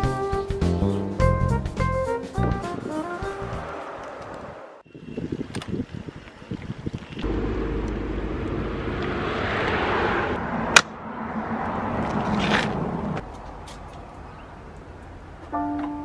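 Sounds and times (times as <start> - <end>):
cars passing tyre noise: 2.7 - 4.8, 7.2 - 15.5.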